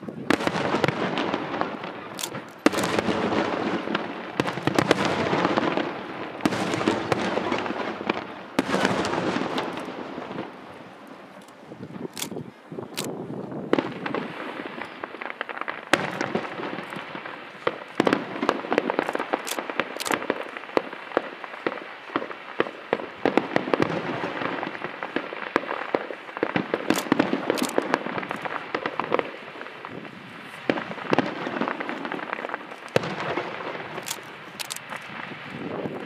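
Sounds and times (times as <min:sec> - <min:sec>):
firework bangs: 0:00.0 - 0:36.0
fireworks crackling: 0:00.0 - 0:36.0.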